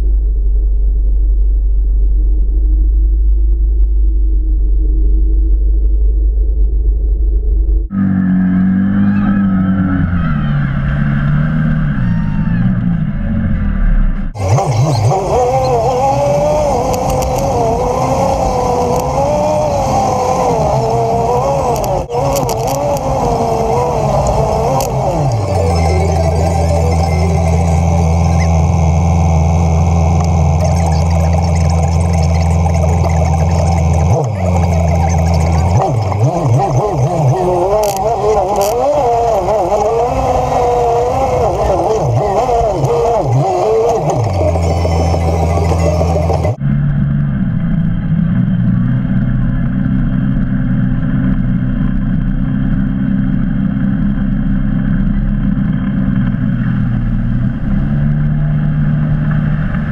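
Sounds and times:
off-road vehicle engine revving: 7.9 - 59.9.

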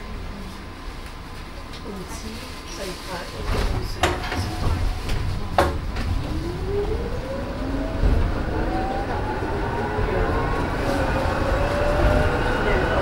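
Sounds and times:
tram rumbling on rails: 0.0 - 13.0
tram motors whining: 3.4 - 13.0.

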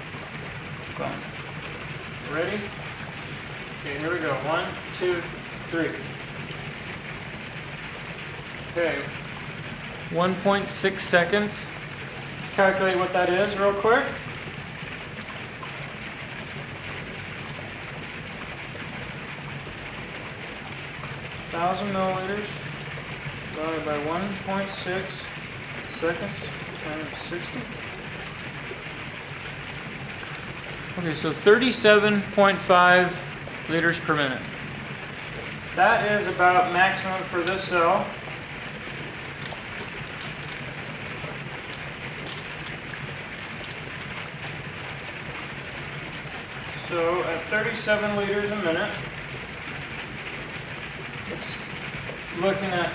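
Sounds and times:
gas bubbling through water: 0.0 - 52.9
generator fizzing hiss: 0.0 - 52.9
low steady hum: 0.0 - 52.9
short sharp ticks: 39.4 - 40.6, 42.2 - 42.8.

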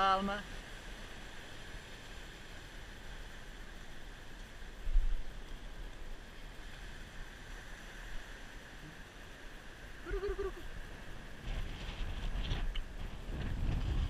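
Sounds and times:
wind buffeting microphone: 10.0 - 14.0.

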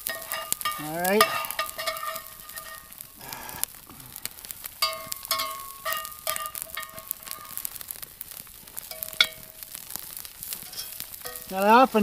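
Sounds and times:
metal spatula scraping skillet: 0.0 - 3.6, 4.8 - 7.7, 10.4 - 12.0
faint frying sizzle: 0.0 - 12.0.

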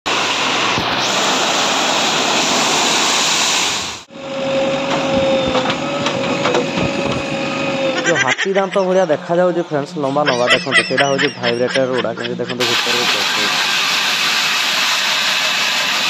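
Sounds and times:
construction machinery humming: 4.1 - 14.5
wet concrete rushing out: 12.6 - 16.0.

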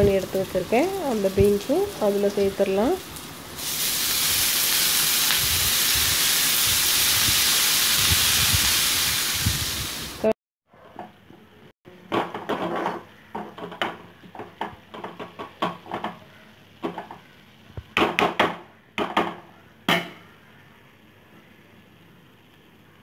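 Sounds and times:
spoon scraping and knocking pan: 12.1 - 17.3.

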